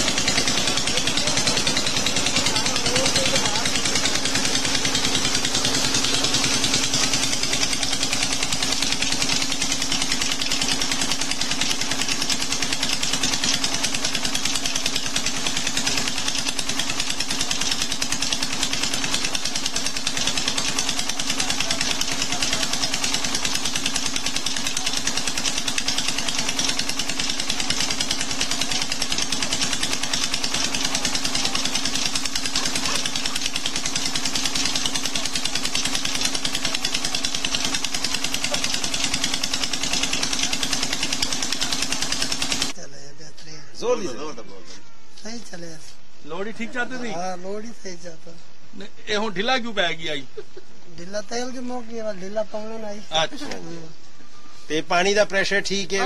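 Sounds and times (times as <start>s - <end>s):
diesel engine running: 0.0s - 42.8s.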